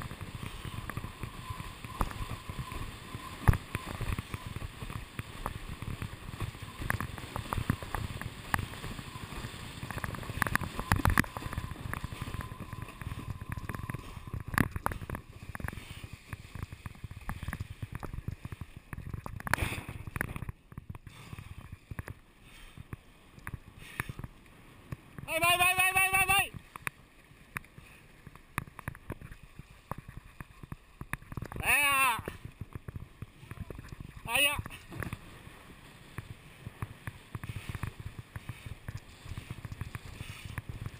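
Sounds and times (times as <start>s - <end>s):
wind rushing past camera: 0.0s - 22.2s.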